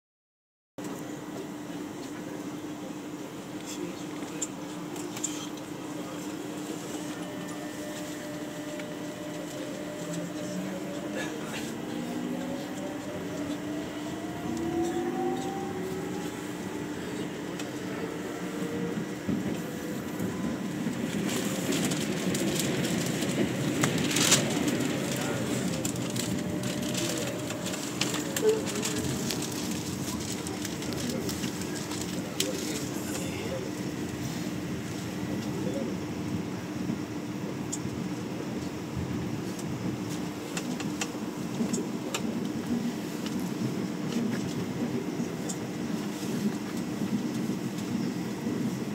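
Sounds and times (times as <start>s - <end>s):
constant hum: 0.8s - 48.9s
wheels rumbling on rail: 0.8s - 48.9s
train motors whining: 6.8s - 35.8s.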